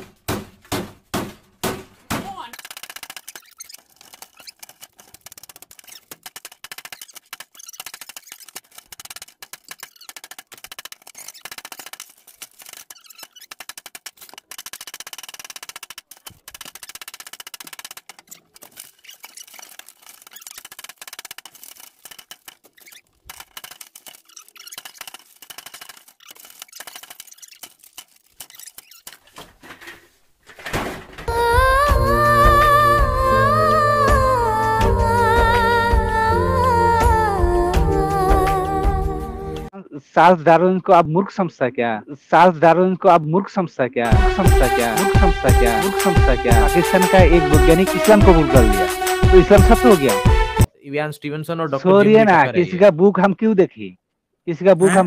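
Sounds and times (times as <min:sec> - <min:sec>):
metal rod scraping: 0:02.6 - 0:30.1.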